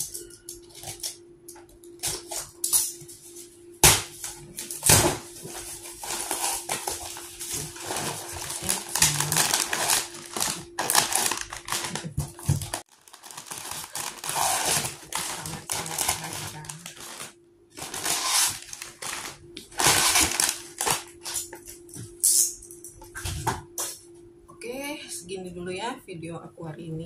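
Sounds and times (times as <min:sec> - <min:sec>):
faint steady hum: 0:00.0 - 0:27.0
plastic packets crinkling: 0:05.5 - 0:21.4.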